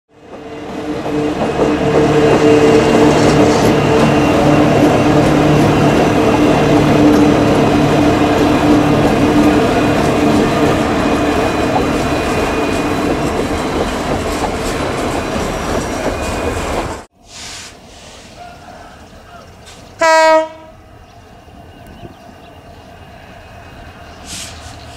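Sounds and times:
locomotive engine drone: 0.2 - 17.1
train clattering on rails: 0.2 - 17.1.

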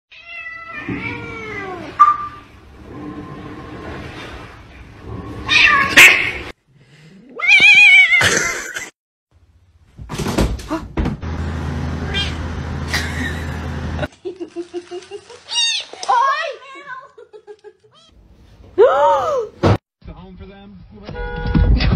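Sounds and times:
cats meowing and yowling: 0.1 - 2.0, 5.5 - 6.4, 7.3 - 8.3, 12.1 - 12.4, 15.4 - 16.0.

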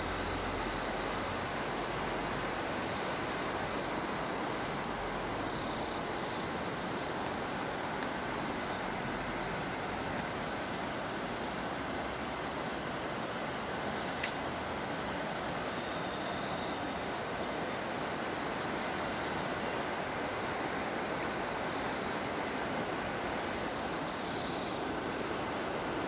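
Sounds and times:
mountain river rushing: 0.0 - 26.0
faint click: 14.2 - 14.4.

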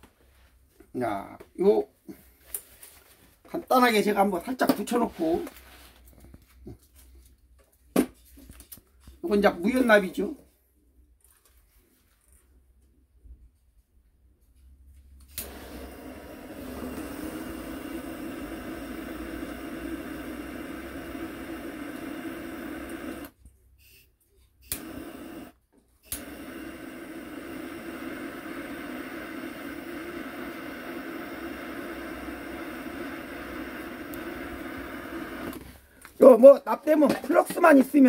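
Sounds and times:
gas torch ignition click: 15.2 - 23.4, 24.6 - 35.7
torch flame hissing: 15.3 - 23.4, 24.6 - 35.8.

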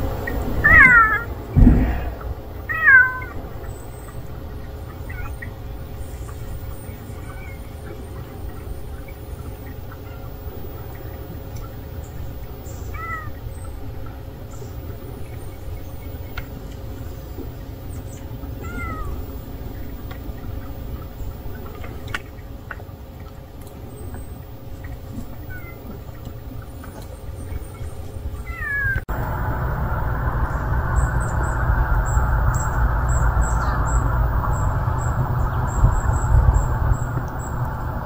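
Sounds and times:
low outdoor rumble: 0.0 - 38.0
cat meowing: 0.6 - 1.3, 2.7 - 3.4, 18.6 - 19.2, 28.5 - 29.0.

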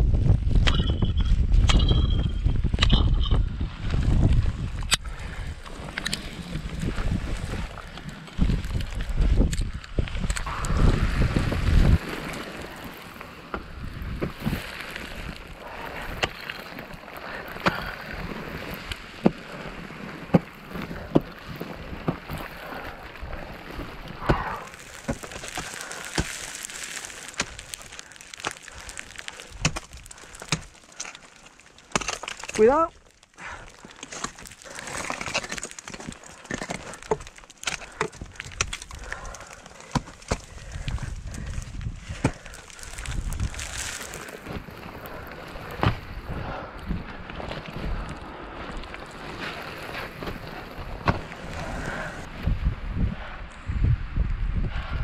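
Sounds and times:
ice tools striking ice: 11.8 - 19.4, 23.7 - 40.6.

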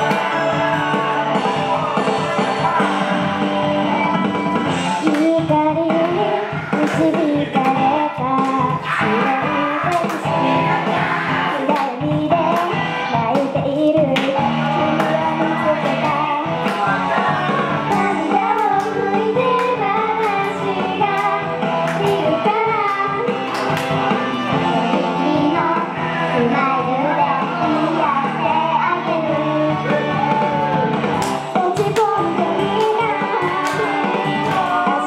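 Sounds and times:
pop backing track with drums: 0.0 - 35.0
girls singing in unison: 5.0 - 23.5, 24.7 - 30.0, 31.5 - 35.0.

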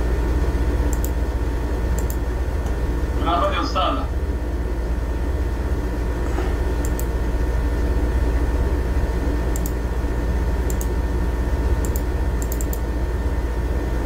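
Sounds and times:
electrical hum with whine: 0.0 - 14.0
sharp double clicks: 0.9 - 1.2, 2.0 - 2.8, 6.8 - 7.1, 9.5 - 9.8, 10.6 - 11.0, 11.8 - 12.9.

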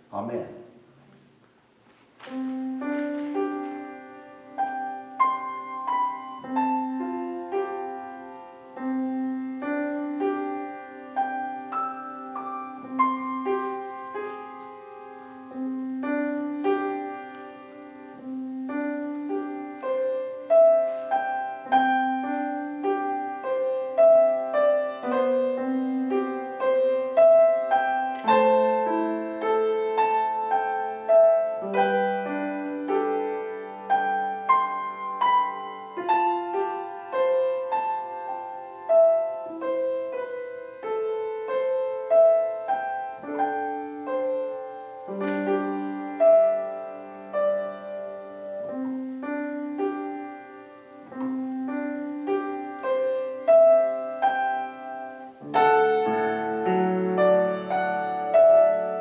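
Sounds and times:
solo piano worship piece: 0.0 - 59.0.

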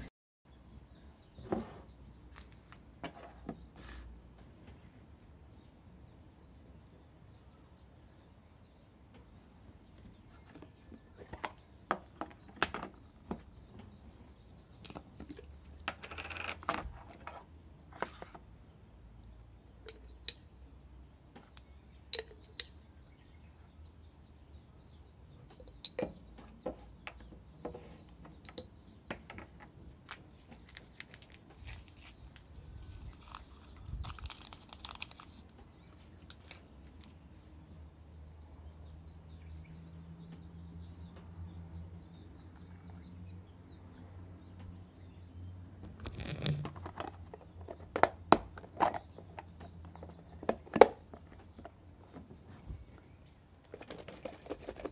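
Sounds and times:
glass jar and spoon clinking: 19.8 - 20.5, 22.1 - 22.8, 25.6 - 26.2, 28.4 - 28.8.

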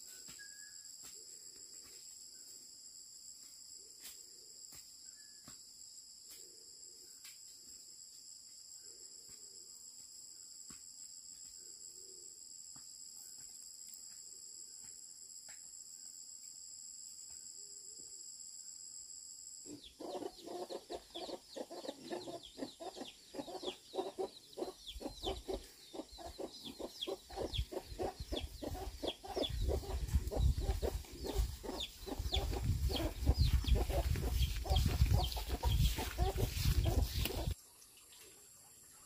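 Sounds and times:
chickens clucking: 19.7 - 37.6.

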